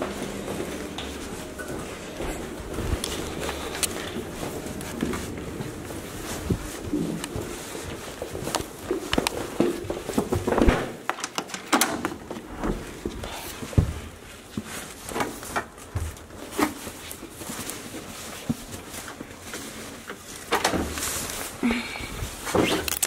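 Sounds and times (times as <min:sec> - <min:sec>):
low thumps like footsteps: 0:00.2 - 0:10.9.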